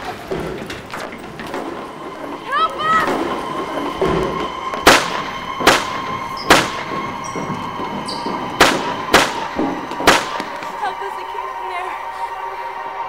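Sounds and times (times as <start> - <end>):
steady high hum: 1.0 - 13.0
loud sharp bangs with echo: 2.8 - 11.0.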